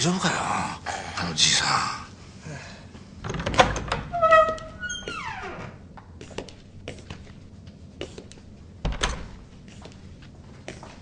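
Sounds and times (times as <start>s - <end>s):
door bumping open: 3.2s - 5.6s, 8.8s - 9.4s
door creaking: 3.2s - 5.9s, 8.8s - 9.4s
footsteps: 5.9s - 11.0s.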